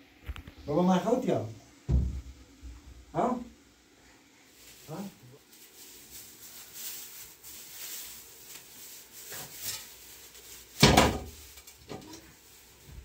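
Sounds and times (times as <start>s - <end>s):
loud thump: 1.9s - 2.8s
quiet knocks: 1.9s - 2.8s
rustling: 4.0s - 13.0s.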